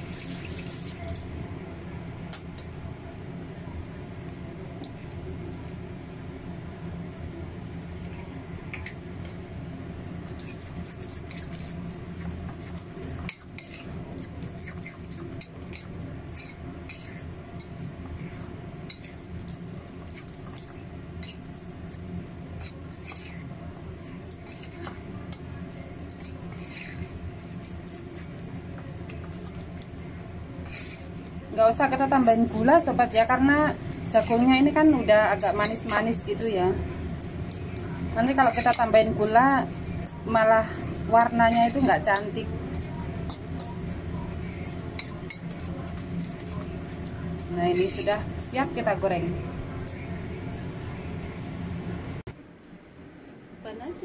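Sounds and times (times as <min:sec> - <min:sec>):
steady low hum: 0:00.0 - 0:54.0
fork clinking and scraping bowl: 0:10.3 - 0:22.0, 0:22.6 - 0:25.4, 0:26.1 - 0:28.4, 0:30.6 - 0:36.3, 0:37.2 - 0:40.2, 0:40.8 - 0:43.8, 0:44.4 - 0:48.2.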